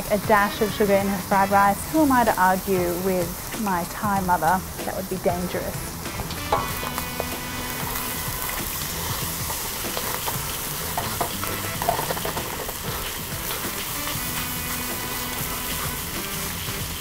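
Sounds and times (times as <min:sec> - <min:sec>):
food sizzling in a wok: 0:00.0 - 0:17.0
spatula scraping and knocking pan: 0:06.1 - 0:16.4.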